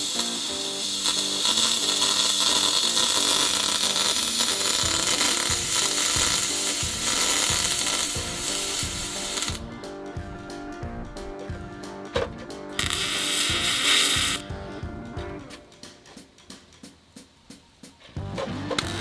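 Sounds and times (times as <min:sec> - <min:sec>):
welding arc crackling hiss: 0:00.0 - 0:09.7, 0:12.8 - 0:14.5
background music: 0:00.0 - 0:19.0.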